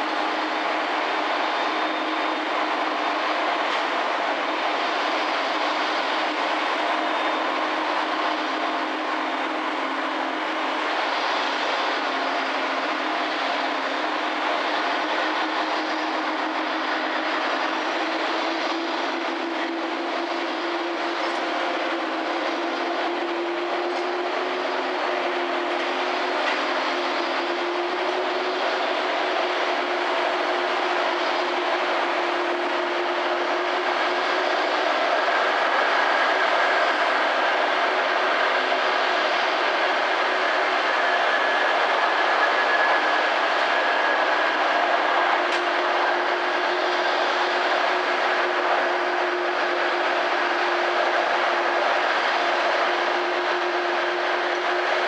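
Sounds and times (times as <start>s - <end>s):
jet airliner roar: 0.0s - 55.0s
jet engine high whine: 0.0s - 55.0s.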